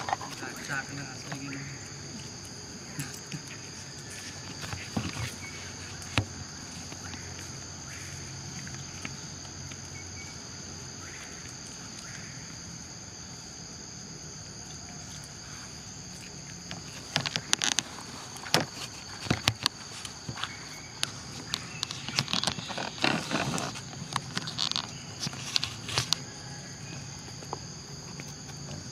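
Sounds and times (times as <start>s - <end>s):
high-pitched insect drone: 0.0s - 28.9s
sharp clicks and crackles: 16.7s - 26.2s.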